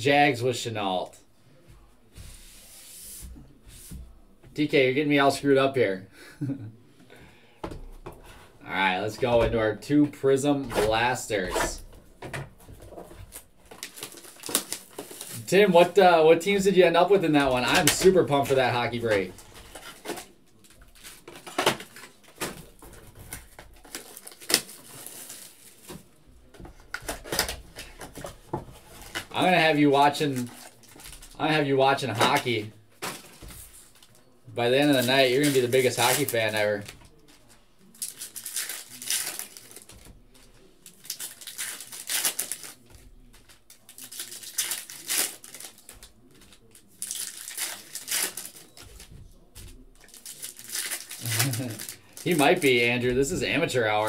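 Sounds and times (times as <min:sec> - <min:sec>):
foil wrappers crinkling and tearing: 0:13.3 - 0:25.9, 0:28.8 - 0:54.0.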